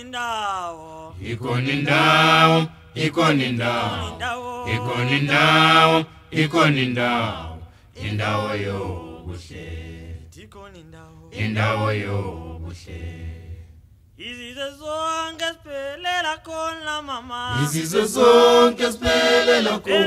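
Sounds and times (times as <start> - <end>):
a cappella choir singing: 1.1 - 10.5, 11.3 - 13.9, 17.5 - 20.0.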